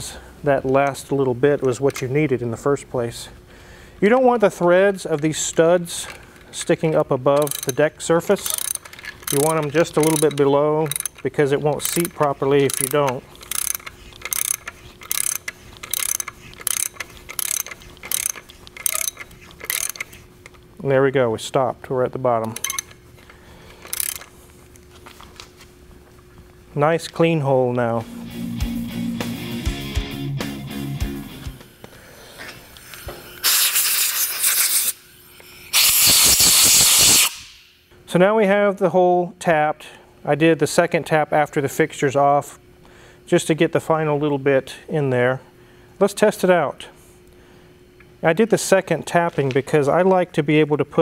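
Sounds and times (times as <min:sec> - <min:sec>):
hand ratchet clicking: 0:05.0 - 0:20.6, 0:22.4 - 0:23.0, 0:23.8 - 0:24.3
pressurised spray hissing: 0:32.9 - 0:35.0, 0:35.6 - 0:37.6.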